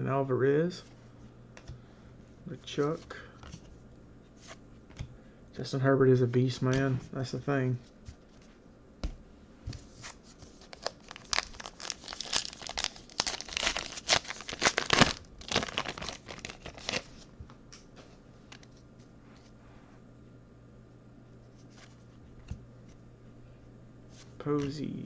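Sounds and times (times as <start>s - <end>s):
wrapper tearing and crinkling: 10.6s - 17.2s.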